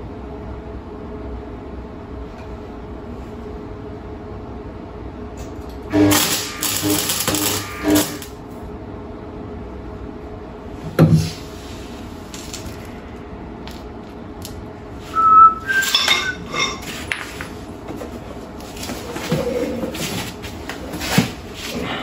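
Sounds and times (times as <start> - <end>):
steady low hum: 0.0 - 22.0
brief high tone: 15.2 - 16.5
ringing metallic clinks: 15.7 - 16.8
metal tools handled: 15.7 - 17.4.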